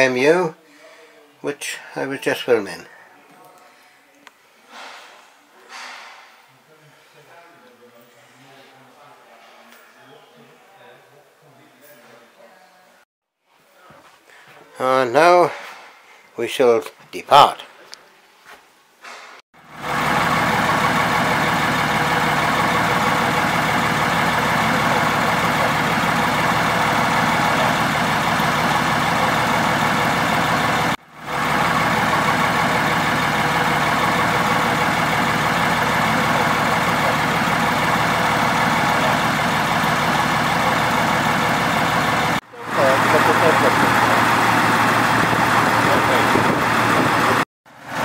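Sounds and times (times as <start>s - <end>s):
diesel locomotive engine running: 19.6s - 48.0s.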